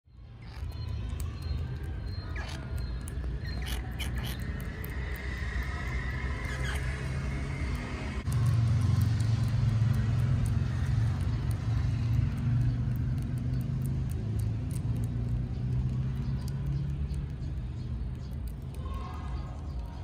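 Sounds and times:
low motor rumble: 0.2 - 20.0.

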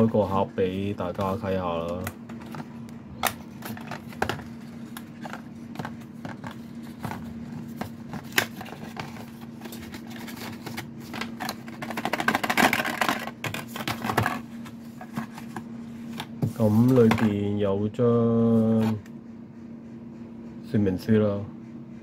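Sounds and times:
steady low hum: 0.0 - 22.0
paper rustling: 3.5 - 15.6.

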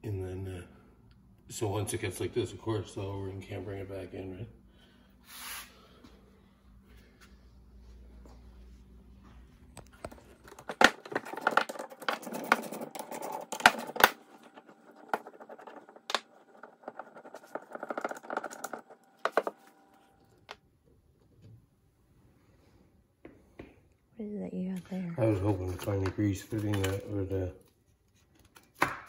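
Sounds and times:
metal parts scraping: 10.2 - 19.6.

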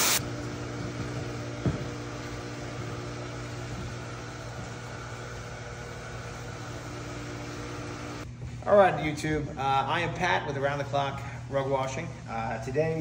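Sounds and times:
electric water pump humming: 0.0 - 13.0.

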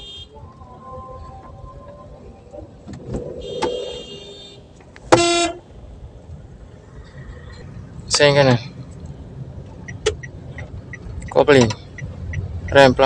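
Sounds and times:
car horn honk: 0.0 - 0.4, 3.4 - 5.7
faint horn-like tone: 3.4 - 4.6.

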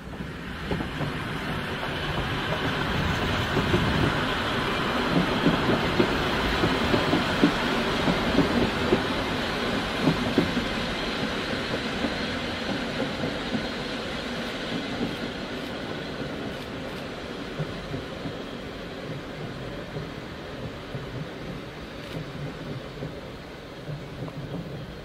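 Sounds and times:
diesel railcar engines: 0.0 - 25.0
train wheels clickety-clack: 0.0 - 25.0.

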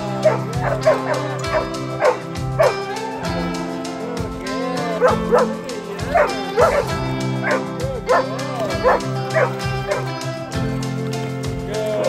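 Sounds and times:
love song playing: 0.0 - 12.0
dog yipping and barking: 0.2 - 3.3, 5.0 - 10.1.

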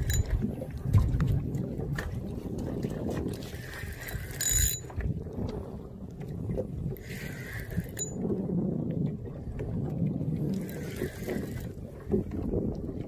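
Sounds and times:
fishing reel whirring: 0.0 - 0.4, 3.6 - 5.0, 7.0 - 8.2, 10.5 - 11.8
wind and water rumble: 0.0 - 13.0.

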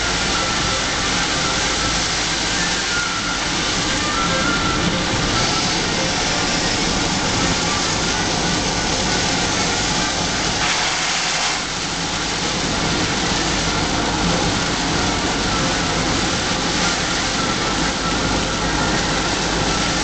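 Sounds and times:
car engine and tyre noise: 0.0 - 20.0
heavy rain on car roof: 0.0 - 20.0.

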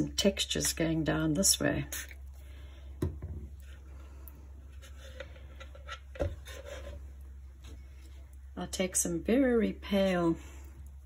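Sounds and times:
soft rubbing: 3.5 - 8.4.

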